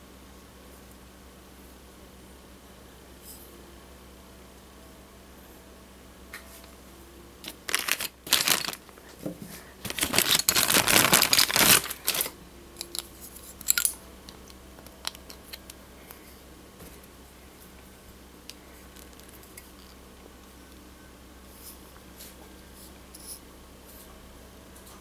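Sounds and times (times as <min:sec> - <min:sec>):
plastic crinkling and rustling: 0:07.4 - 0:13.9, 0:18.8 - 0:19.9.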